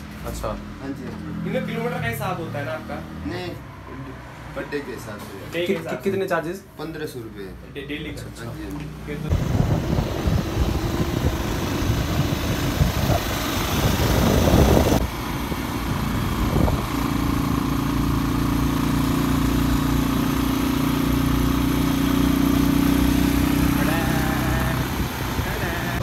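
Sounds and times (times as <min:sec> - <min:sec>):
motorcycle engine: 0:09.0 - 0:26.0
wind rushing over microphone: 0:09.3 - 0:17.3.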